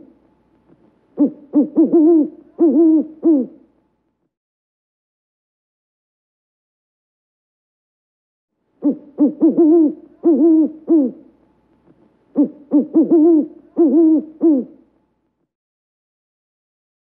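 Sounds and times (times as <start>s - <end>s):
owl hooting: 1.1s - 3.7s, 8.8s - 11.3s, 12.3s - 14.8s.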